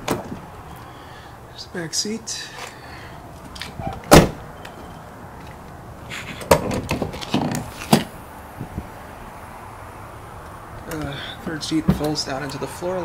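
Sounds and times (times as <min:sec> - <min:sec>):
liftgate clicks and knocks: 0:00.0 - 0:00.4
car door slamming: 0:00.0 - 0:00.5, 0:03.8 - 0:04.5.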